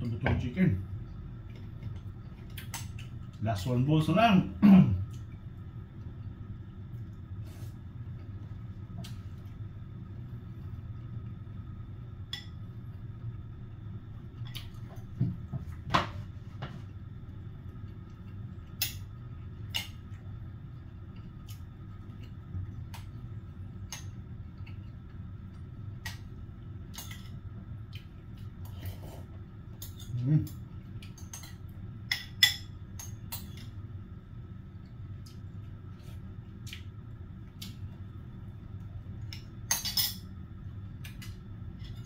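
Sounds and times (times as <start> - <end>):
steady low hum: 0.0 - 42.0
utensils clinking against a bowl: 39.7 - 40.3.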